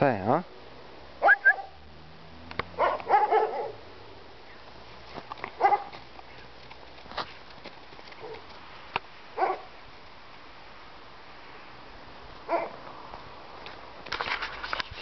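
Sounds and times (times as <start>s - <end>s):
puppy barking and yipping: 1.2s - 1.8s, 2.7s - 3.8s, 5.6s - 6.0s, 9.4s - 9.7s, 12.5s - 12.8s.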